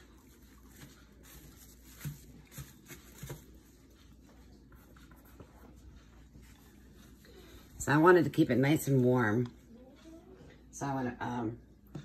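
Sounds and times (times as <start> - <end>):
plastic wrap rustling: 0.0 - 4.2.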